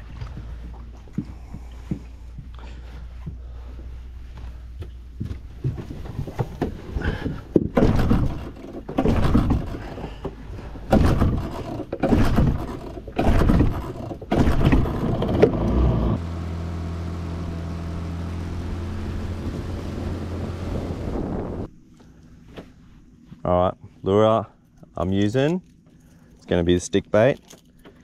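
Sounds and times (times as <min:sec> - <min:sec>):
loud knocks and scrapes: 0:05.6 - 0:15.8
outboard motor droning: 0:06.6 - 0:23.4.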